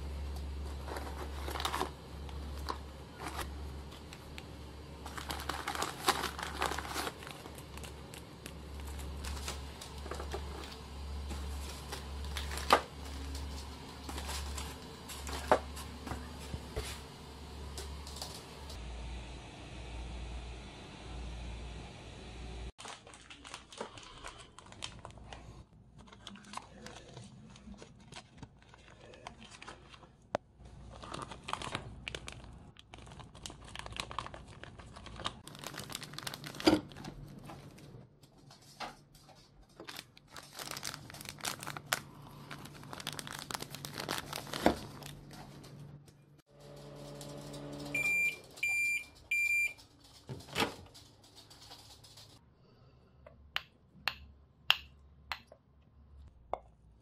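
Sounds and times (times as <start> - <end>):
microwave oven humming: 0.0 - 22.7, 40.9 - 51.0
plastic pouch crinkling: 0.6 - 15.6, 22.8 - 37.9, 39.7 - 45.6
microwave beeps: 47.4 - 49.8.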